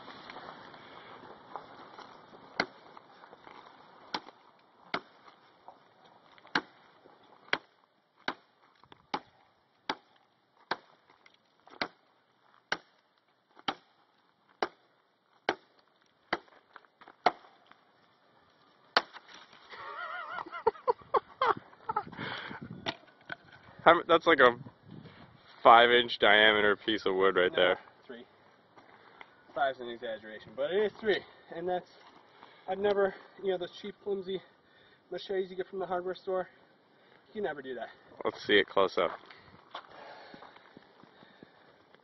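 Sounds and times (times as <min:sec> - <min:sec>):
blade chopping through log: 0:04.1 - 0:05.2, 0:06.4 - 0:06.8, 0:07.5 - 0:08.5, 0:09.1 - 0:10.9, 0:13.6 - 0:13.9, 0:15.4 - 0:15.7, 0:16.3 - 0:16.5, 0:17.2 - 0:17.5, 0:19.0 - 0:19.5.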